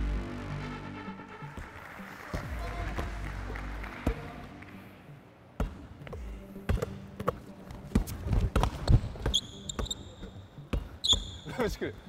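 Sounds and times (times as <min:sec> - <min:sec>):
sneaker squeaks on floor: 0:08.0 - 0:11.6.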